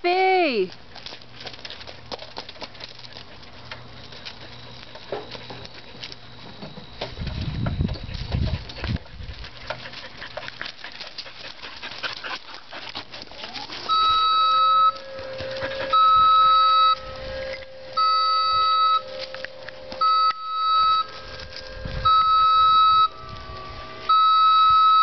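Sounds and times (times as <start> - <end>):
lift motor whine: 13.6 - 25.0
motion alarm beeps: 13.9 - 25.0.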